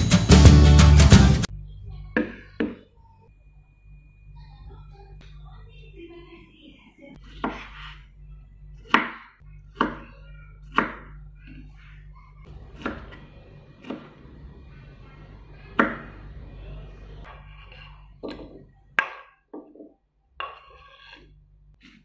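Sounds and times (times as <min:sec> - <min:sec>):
knife chopping on wooden board: 0:07.2 - 0:08.0, 0:08.8 - 0:10.1, 0:10.7 - 0:11.2.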